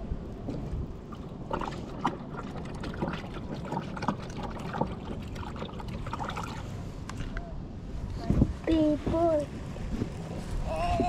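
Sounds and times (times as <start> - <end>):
water splashing against hull: 0.4 - 7.3.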